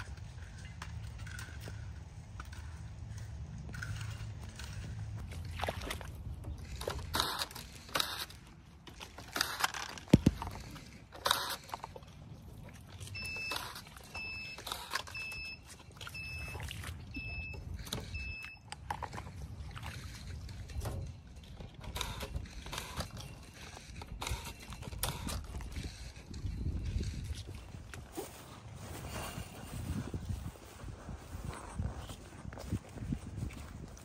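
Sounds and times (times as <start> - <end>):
vine canes and wire rustling: 0.0 - 34.0
short electronic beeps: 13.1 - 18.8.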